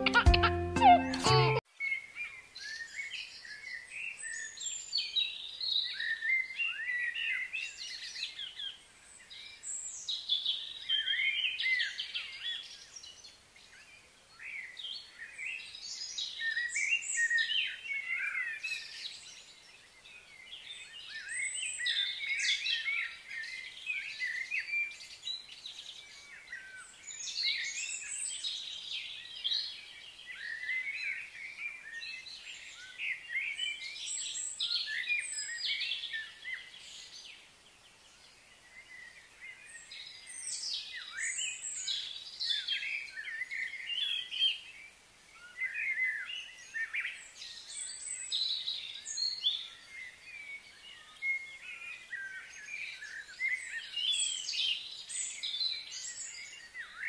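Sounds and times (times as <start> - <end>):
birds chirping and singing: 20.6 - 37.3, 45.4 - 57.0.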